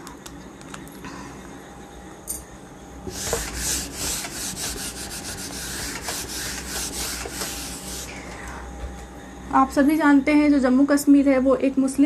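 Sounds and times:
eraser rubbing on whiteboard: 0:03.1 - 0:08.2.

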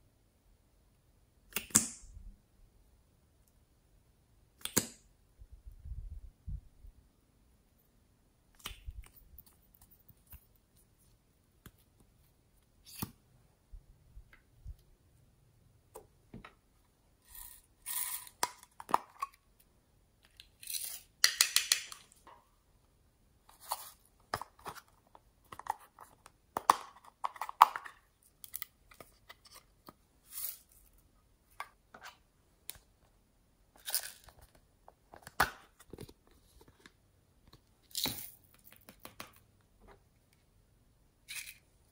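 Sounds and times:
plastic caps clicking and snapping: 0:21.2 - 0:22.2.

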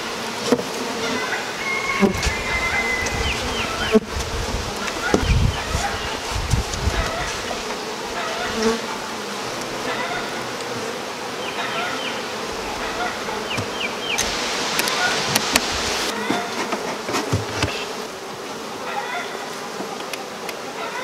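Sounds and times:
bees buzzing: 0:00.0 - 0:21.0
wooden hive boxes knocking: 0:02.0 - 0:07.8, 0:13.2 - 0:18.0.

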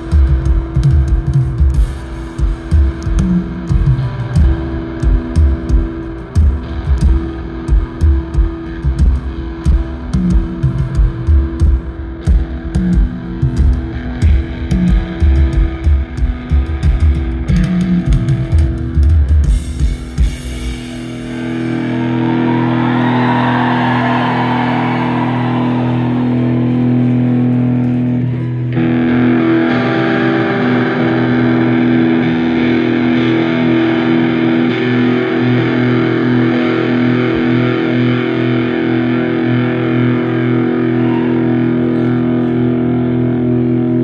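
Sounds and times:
distorted electric guitar chord: 0:28.8 - 0:40.9.

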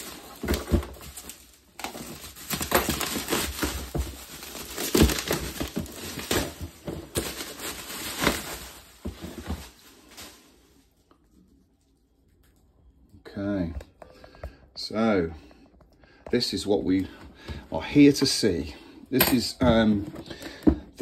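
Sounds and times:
plastic packaging crinkling: 0:00.0 - 0:11.3.

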